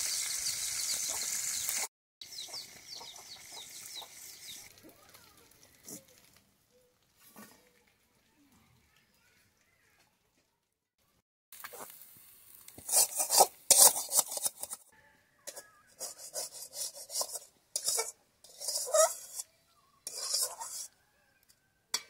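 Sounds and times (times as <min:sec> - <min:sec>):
metal spatula scraping a wok: 0:12.7 - 0:21.0.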